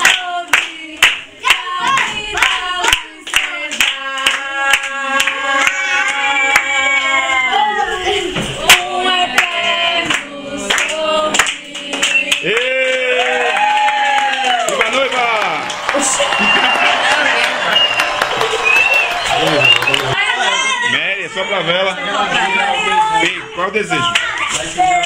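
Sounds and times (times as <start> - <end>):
people clapping in time: 0.0 - 6.8, 8.6 - 20.2
group singing a celebration song: 0.0 - 14.1, 20.2 - 25.0.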